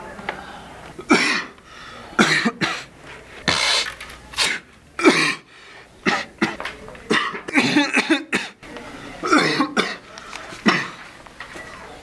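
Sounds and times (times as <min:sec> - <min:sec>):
man coughing: 0:01.0 - 0:01.6, 0:02.2 - 0:02.9, 0:04.4 - 0:08.6, 0:09.2 - 0:10.0, 0:10.6 - 0:11.0.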